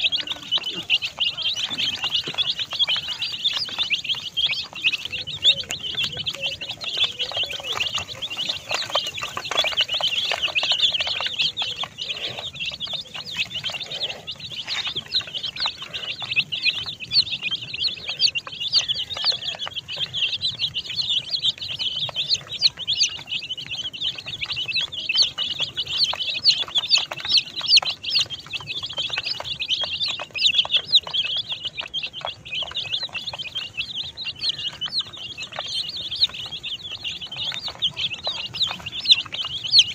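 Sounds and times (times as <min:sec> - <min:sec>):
baby chickens peeping: 0:00.0 - 0:39.9.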